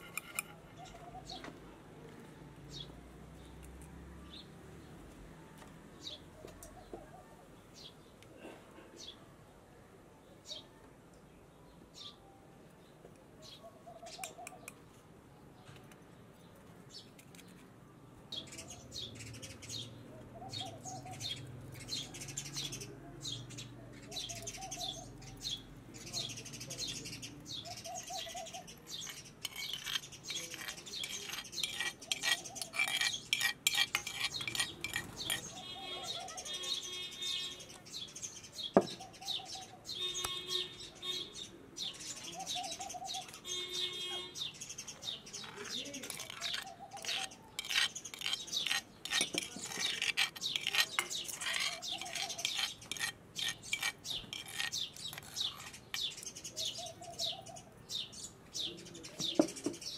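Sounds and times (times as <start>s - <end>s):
small birds chirping: 12.9s - 59.9s.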